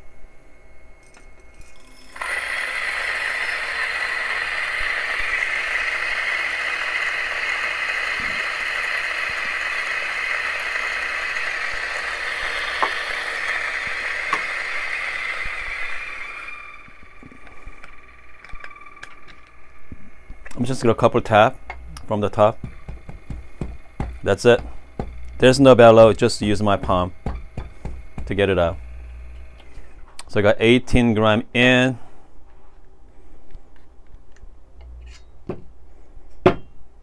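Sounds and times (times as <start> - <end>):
coffee grinder grinding: 1.0 - 30.0
coffee beans rattling into hopper: 1.6 - 19.6.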